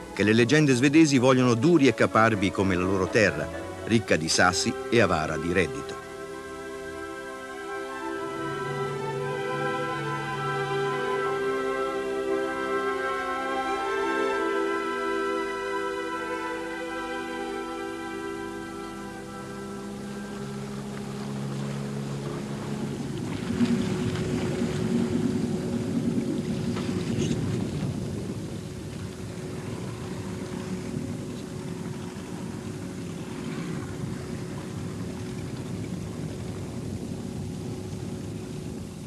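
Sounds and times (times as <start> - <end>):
music: 0.0 - 27.4, 28.6 - 38.8
wind on microphone: 18.4 - 39.0
outboard motor running: 18.7 - 39.0.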